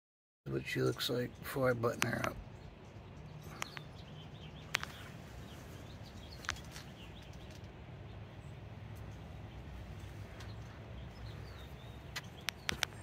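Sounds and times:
faint bird chirps: 0:02.1 - 0:13.0
sharp ticks: 0:12.1 - 0:13.0.

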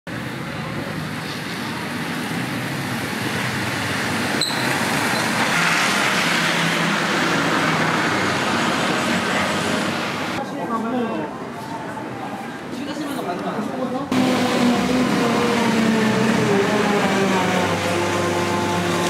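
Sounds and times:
bus driving past: 0:00.1 - 0:10.4, 0:14.1 - 0:19.0
street traffic: 0:00.1 - 0:19.0.

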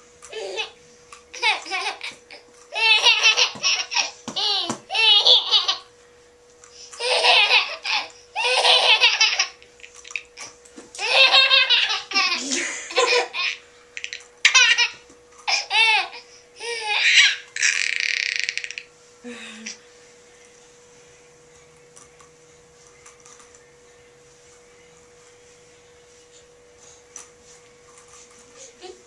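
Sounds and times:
toddler giggling: 0:01.4 - 0:05.9, 0:07.0 - 0:09.7, 0:11.0 - 0:18.8, 0:28.6 - 0:29.0.

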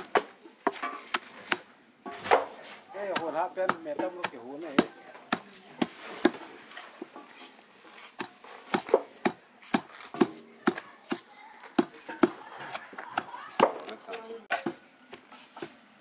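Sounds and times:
pestle pounding in stone mortar: 0:03.1 - 0:06.4, 0:08.1 - 0:13.9.

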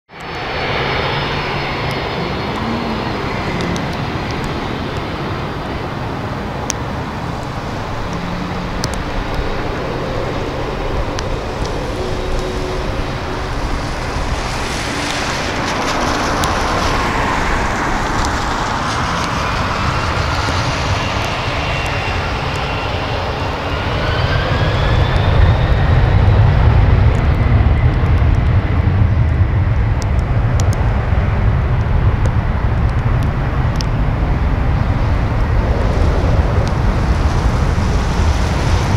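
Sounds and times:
jet engines spooling up: 0:00.1 - 0:31.2
deep jet rumble: 0:00.1 - 0:38.9.

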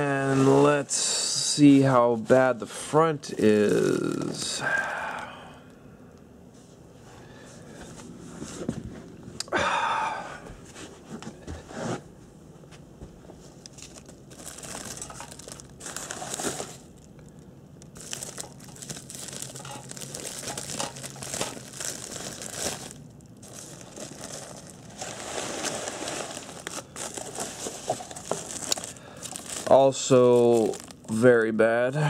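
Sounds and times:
bubble wrap crinkling: 0:03.3 - 0:05.2, 0:13.6 - 0:31.2.

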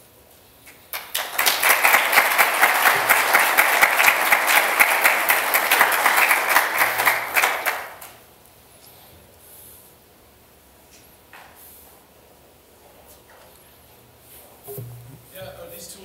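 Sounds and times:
audience applauding: 0:00.9 - 0:08.2.

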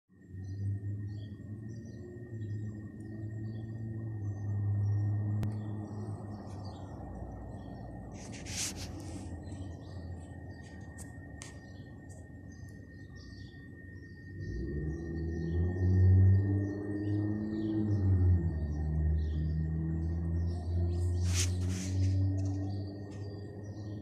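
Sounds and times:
small birds chirping: 0:00.2 - 0:24.0
brief rustle: 0:08.2 - 0:09.4, 0:21.2 - 0:22.6.

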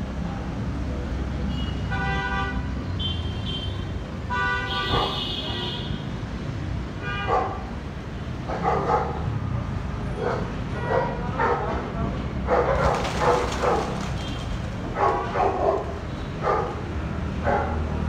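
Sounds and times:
dog barking: 0:04.8 - 0:05.3, 0:07.2 - 0:07.7, 0:08.5 - 0:09.2, 0:10.2 - 0:11.8, 0:12.5 - 0:14.1, 0:14.9 - 0:18.0.

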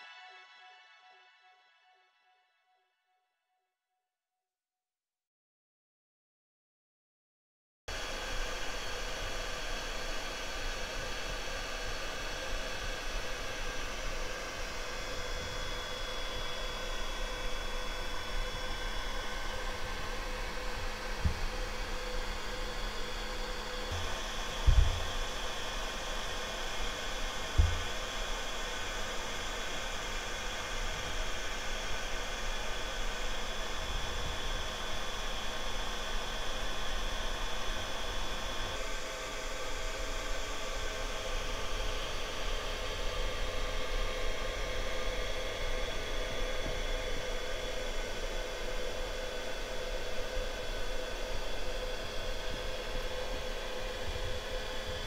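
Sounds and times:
dull low thumps: 0:24.0 - 0:25.1.

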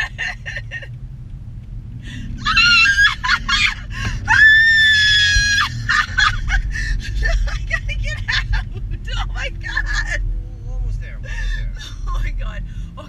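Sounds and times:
car engine and road noise: 0:00.0 - 0:13.0
woman screaming: 0:02.4 - 0:06.6.

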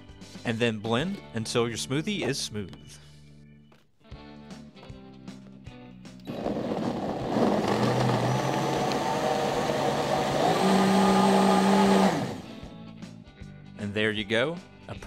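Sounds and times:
blender running loudly: 0:06.3 - 0:12.6.

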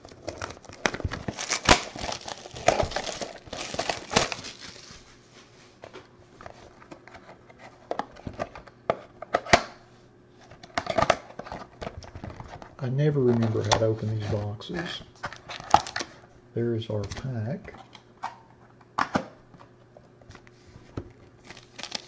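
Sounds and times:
plastic shrink wrap crinkling: 0:00.0 - 0:05.2, 0:15.3 - 0:16.1, 0:21.4 - 0:22.0.

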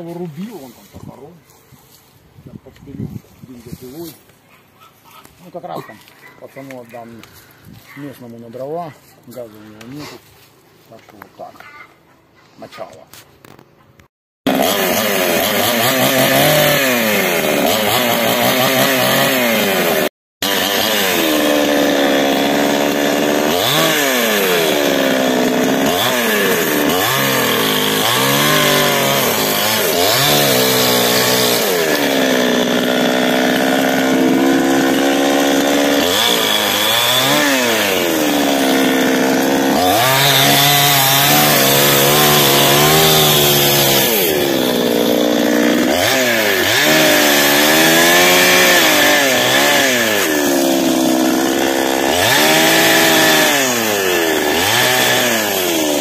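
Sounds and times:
chainsaw cutting wood: 0:14.4 - 0:56.0.

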